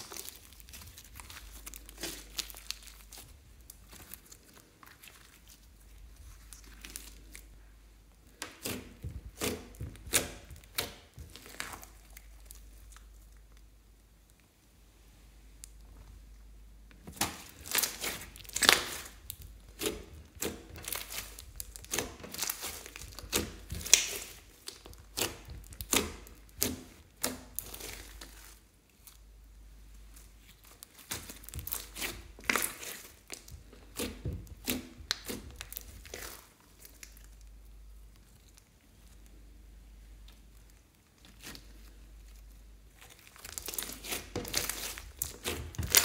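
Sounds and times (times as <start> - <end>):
slime squishing and popping: 0.0 - 5.6, 8.4 - 13.6, 17.0 - 29.2, 30.4 - 37.5, 42.9 - 46.0.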